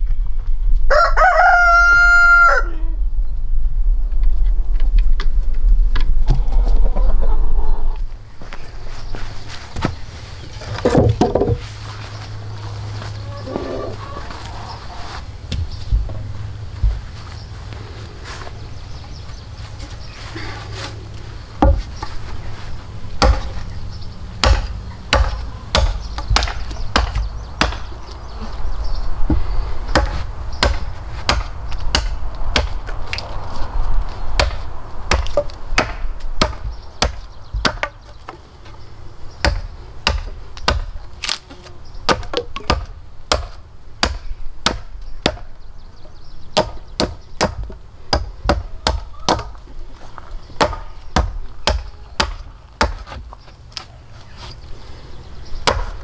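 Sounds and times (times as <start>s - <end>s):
hand tool striking wood: 21.6s - 22.1s, 23.2s - 23.6s, 24.4s - 27.9s.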